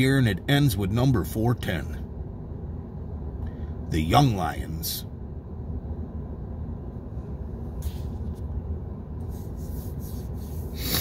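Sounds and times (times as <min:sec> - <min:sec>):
short soft hisses: 0:09.2 - 0:11.0.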